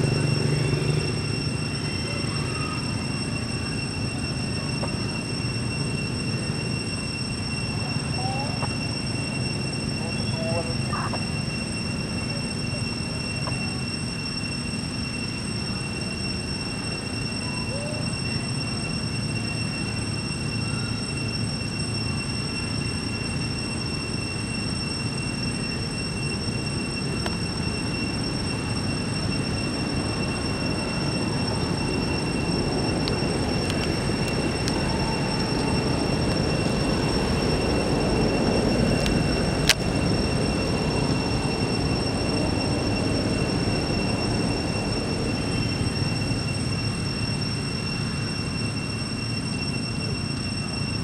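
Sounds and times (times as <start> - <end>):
faint high-pitched tones: 0.0 - 51.0
steady low rumbling: 26.9 - 47.0.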